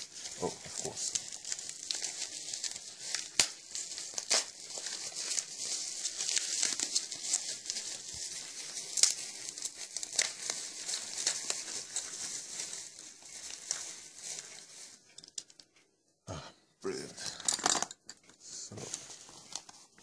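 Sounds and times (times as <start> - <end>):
packaging crinkling and rustling: 0.0 - 15.8, 18.8 - 20.0.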